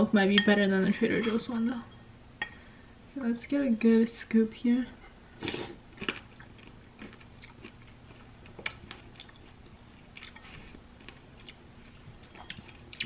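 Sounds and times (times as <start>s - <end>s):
person chewing: 5.4s - 13.0s.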